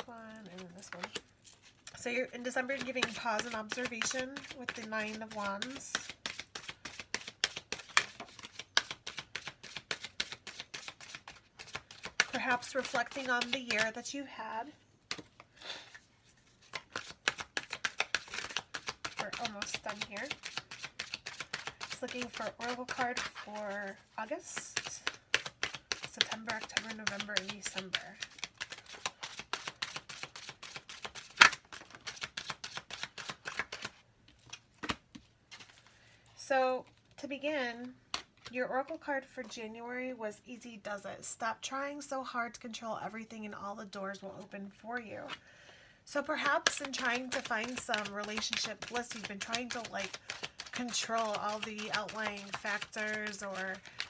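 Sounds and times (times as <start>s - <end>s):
cards being shuffled: 0.0s - 2.0s, 2.6s - 14.0s, 15.1s - 36.0s, 38.1s - 38.5s, 46.3s - 54.0s.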